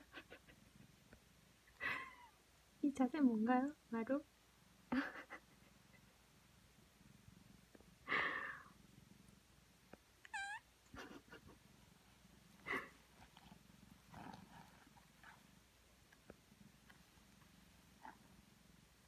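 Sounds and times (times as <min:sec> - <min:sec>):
cat purring: 0:00.0 - 0:19.0
cat chirp: 0:10.3 - 0:10.7
cat meowing: 0:10.3 - 0:10.7.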